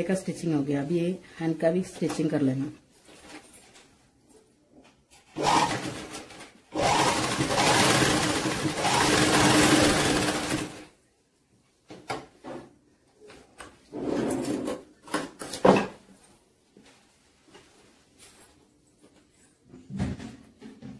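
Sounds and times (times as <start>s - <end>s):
sewing machine stitching: 5.3s - 10.9s.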